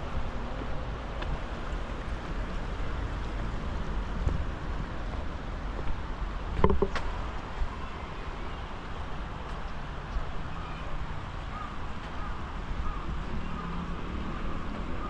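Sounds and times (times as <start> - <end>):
passing traffic: 0.0 - 15.0
wind: 0.0 - 15.0
crow cawing faintly: 11.5 - 13.8.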